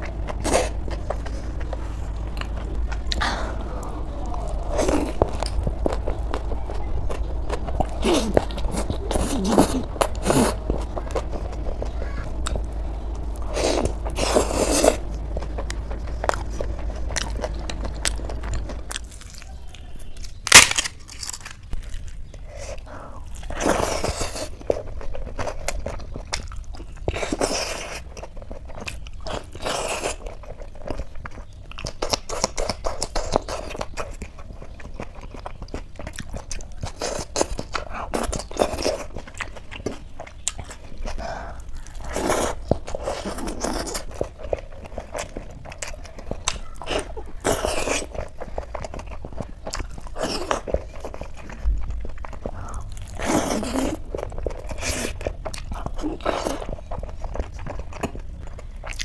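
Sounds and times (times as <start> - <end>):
crisp crunches: 0.0 - 59.0
person chewing: 0.0 - 59.0
loud crack of crisp food: 17.5 - 59.0.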